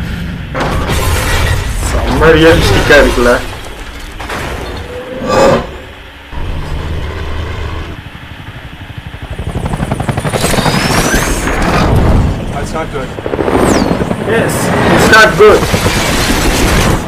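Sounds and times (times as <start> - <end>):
helicopter rotor chopping: 6.3 - 17.0.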